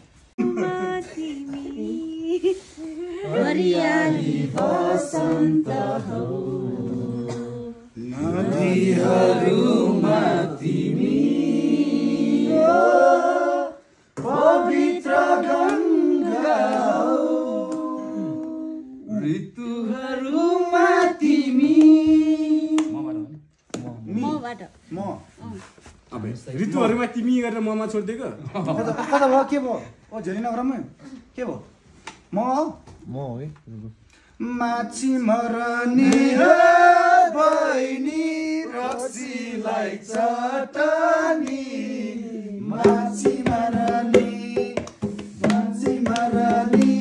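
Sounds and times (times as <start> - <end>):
group singing unaccompanied: 0.4 - 23.5, 34.4 - 47.0.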